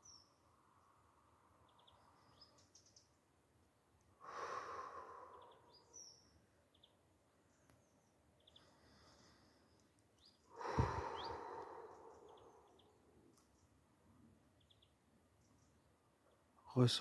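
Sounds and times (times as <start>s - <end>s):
man exhaling slowly: 4.2s - 5.8s, 10.5s - 12.8s
high bird chirps: 5.2s - 7.0s, 10.2s - 13.7s.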